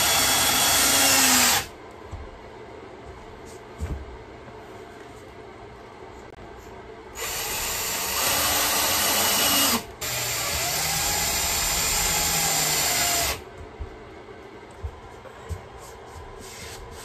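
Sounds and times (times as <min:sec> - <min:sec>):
cordless drill into plywood: 0:00.0 - 0:01.7, 0:07.2 - 0:13.4.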